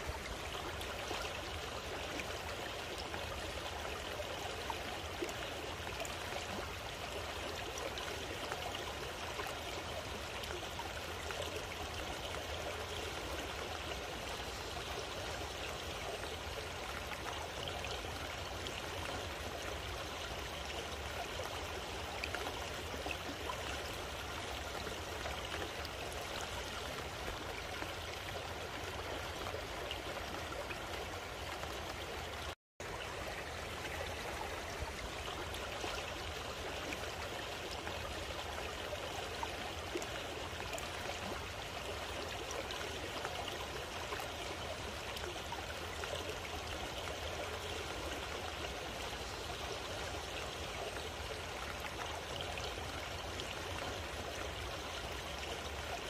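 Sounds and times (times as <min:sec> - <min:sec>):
shallow stream flowing: 0:00.0 - 0:56.0.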